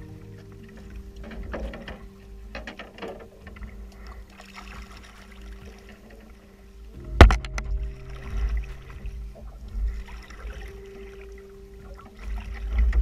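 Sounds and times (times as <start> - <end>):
canoe and gear knocking: 0.0 - 11.2
wind rumble on microphone: 0.0 - 13.0.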